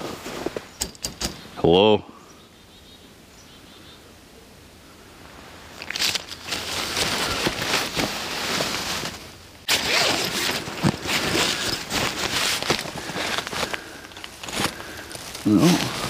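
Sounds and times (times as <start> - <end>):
nylon tent fabric rustling: 5.8 - 16.0.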